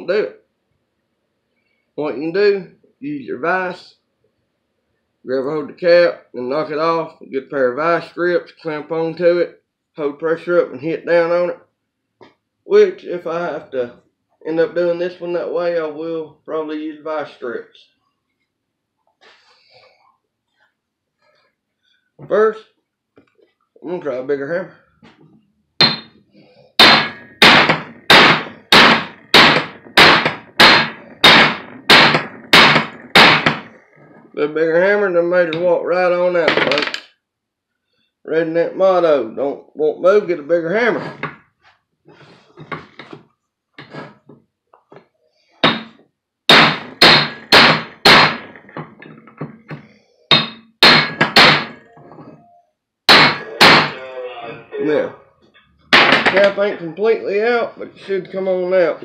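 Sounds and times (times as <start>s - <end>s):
hammer striking steel: 25.8s - 26.2s, 26.8s - 33.8s, 45.6s - 49.4s, 50.3s - 52.4s, 53.1s - 54.0s, 55.9s - 56.6s.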